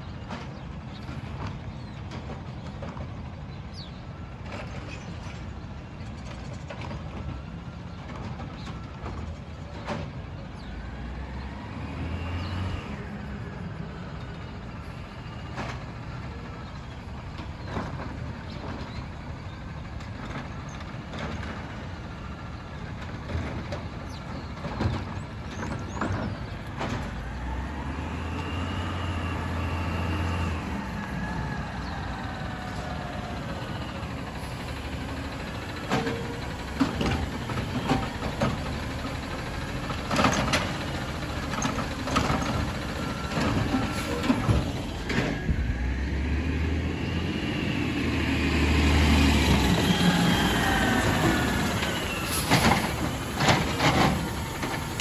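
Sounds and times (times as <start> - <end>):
garbage truck engine revving: 10.6 - 55.0
air brake hissing: 50.2 - 53.0.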